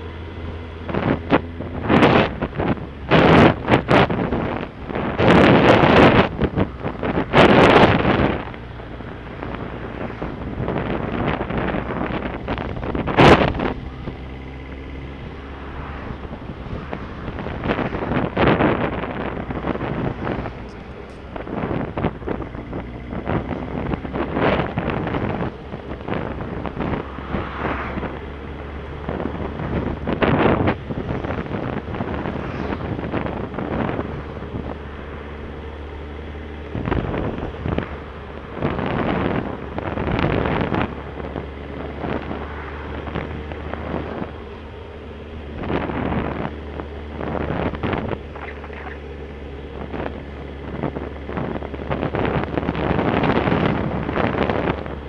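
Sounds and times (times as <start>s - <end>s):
motorcycle engine running: 0.0s - 55.0s
wind buffeting microphone: 0.0s - 55.0s.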